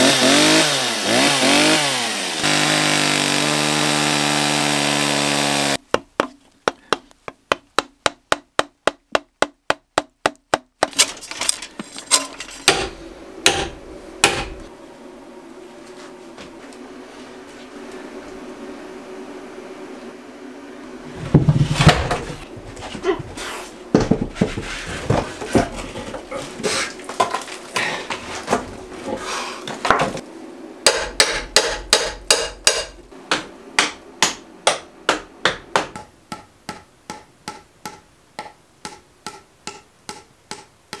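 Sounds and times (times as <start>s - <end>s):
knocks and bangs of timber: 23.9s - 26.4s
steady even tapping: 30.9s - 41.0s.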